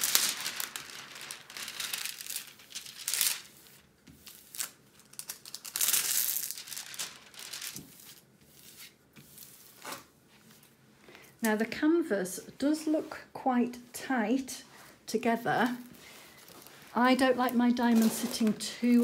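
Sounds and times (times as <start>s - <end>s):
plastic film crinkling: 0.0s - 10.1s, 15.6s - 19.0s.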